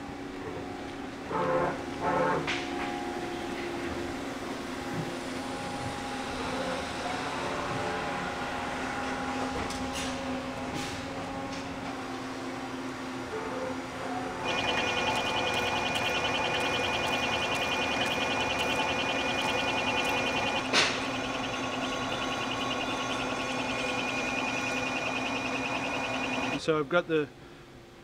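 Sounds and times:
metal lathe running: 14.4 - 26.6.

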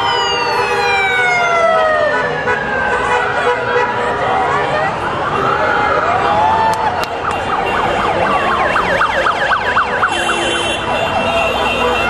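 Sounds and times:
electronic siren yelping and wailing: 0.0 - 3.1, 4.9 - 10.6
vehicle engines running: 0.0 - 12.0.

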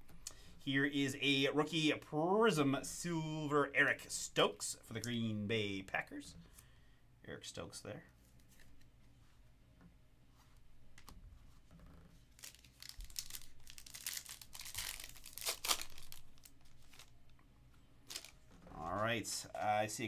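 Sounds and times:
foil wrapper tearing and crinkling: 12.3 - 17.1, 18.1 - 18.4.

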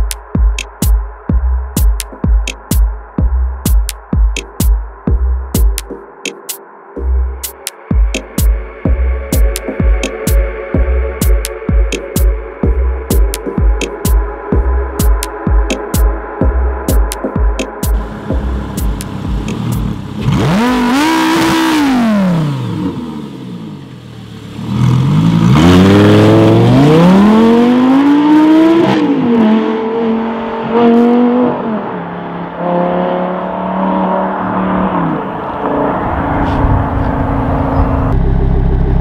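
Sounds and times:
sports car engine revving and accelerating: 18.0 - 39.0.

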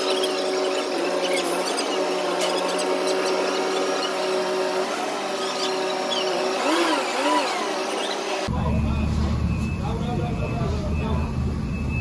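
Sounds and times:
short squeals: 0.0 - 8.5
crane mechanical whine: 0.0 - 12.0.

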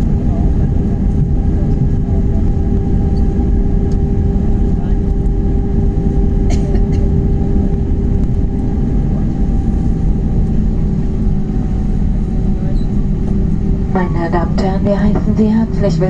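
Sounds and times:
airliner cabin rumble: 0.0 - 16.0
engine hum: 0.0 - 16.0.

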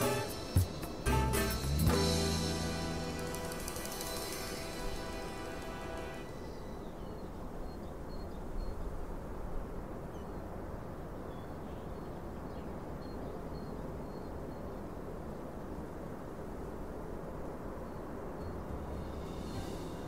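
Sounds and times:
steady low rumble: 18.5 - 20.0.

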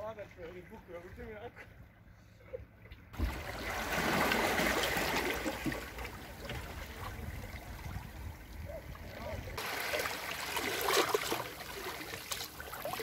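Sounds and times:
sea water lapping on rocks: 3.2 - 13.0.

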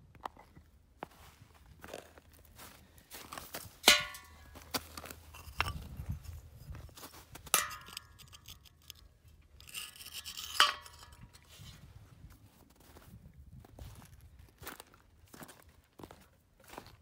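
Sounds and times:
light scraping: 3.6 - 12.1
metal disc and clay target clinking: 3.7 - 11.7.

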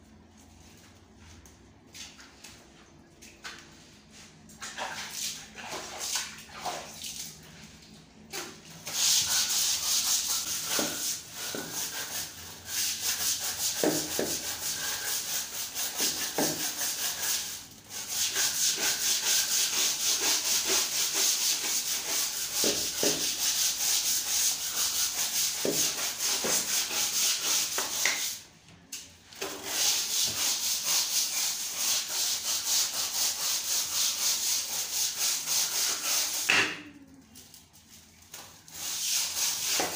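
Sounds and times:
brush scrubbing tiles: 8.3 - 28.5, 29.4 - 39.9.

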